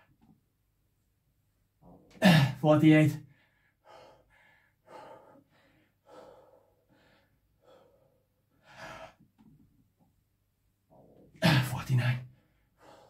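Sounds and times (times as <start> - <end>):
man gasping breaths: 3.2 - 9.3, 12.4 - 13.0.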